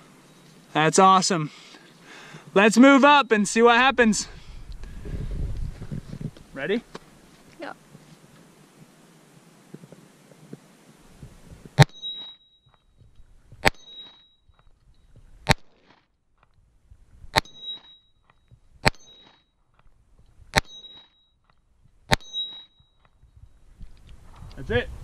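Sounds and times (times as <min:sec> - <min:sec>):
handgun shots: 0:22.1 - 0:22.5.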